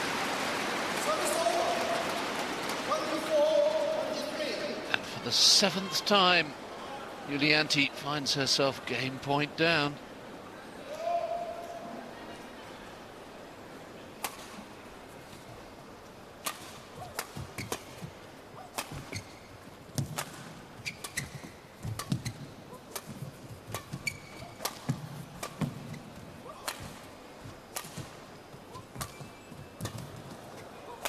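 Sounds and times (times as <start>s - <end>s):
racket hitting shuttlecock: 14.2s - 14.7s, 16.4s - 19.4s, 20.0s - 30.2s
shoe squeaks on court: 18.6s - 20.2s, 20.8s - 22.9s, 23.7s - 25.0s, 28.7s - 30.8s.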